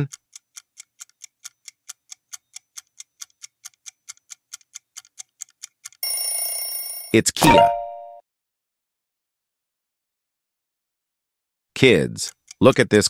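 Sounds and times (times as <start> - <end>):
clock ticking quickly: 0.0 - 6.0, 11.9 - 13.0.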